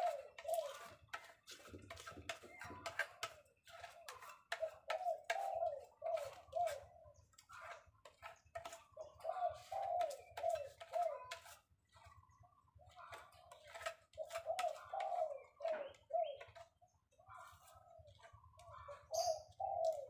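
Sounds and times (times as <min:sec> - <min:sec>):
dove cooing: 0:00.0 - 0:01.0, 0:04.0 - 0:07.1, 0:08.8 - 0:11.3, 0:14.1 - 0:16.6, 0:17.4 - 0:20.0.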